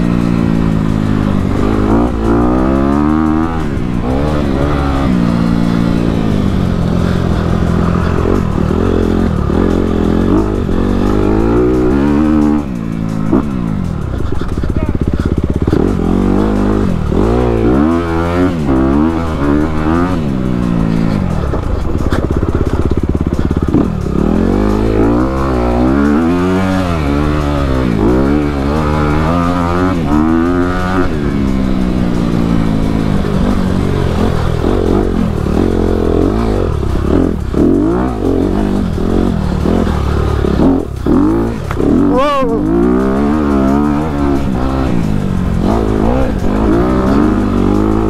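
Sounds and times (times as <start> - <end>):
motorcycle engine revving: 0.0 - 48.0.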